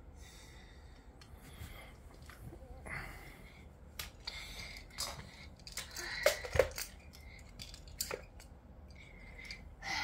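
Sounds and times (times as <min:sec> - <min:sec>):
toy train pieces clicking together: 0:04.0 - 0:09.6.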